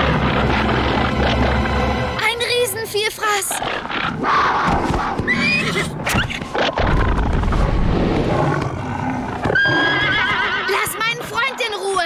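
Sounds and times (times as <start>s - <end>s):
monster growling deeply: 0.0s - 2.2s, 6.9s - 9.5s
dramatic music: 0.0s - 4.1s
pony whinnying: 3.3s - 6.8s, 9.4s - 11.2s.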